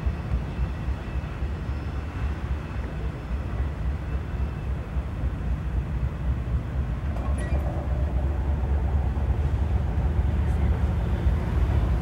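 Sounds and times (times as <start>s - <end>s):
train rumble: 0.0s - 12.0s
faint high squeaks: 7.2s - 8.0s.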